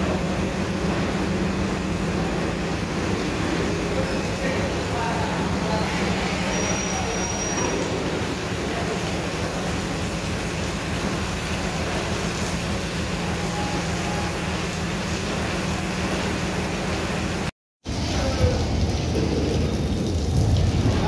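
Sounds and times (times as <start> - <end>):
high thin squeal: 5.7 - 8.1.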